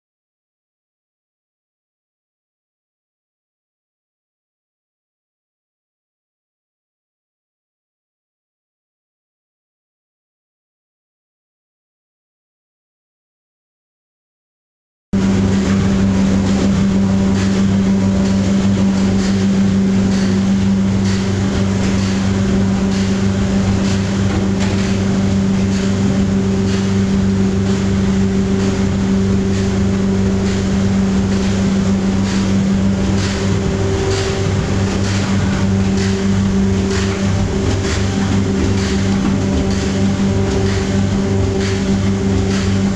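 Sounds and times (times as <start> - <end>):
machine humming with clicks: 15.2 - 42.9.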